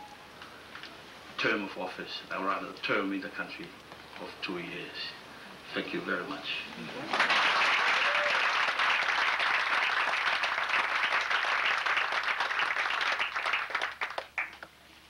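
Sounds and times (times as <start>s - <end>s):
audience applause: 7.0s - 14.7s.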